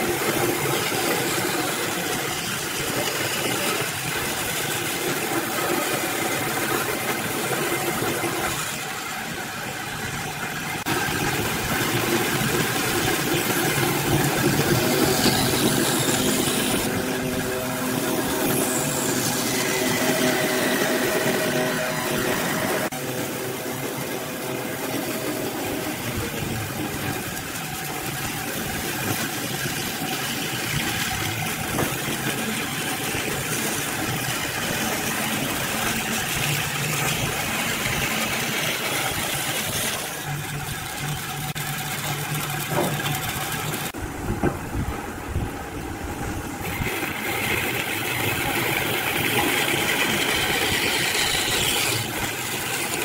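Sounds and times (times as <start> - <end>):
band saw cutting wood: 10.8 - 27.6, 28.2 - 40.4, 46.6 - 53.0.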